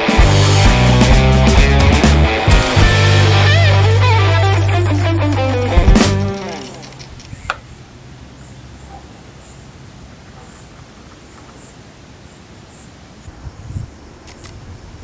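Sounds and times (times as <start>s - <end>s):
sharp click: 6.1s - 7.6s, 14.2s - 14.6s.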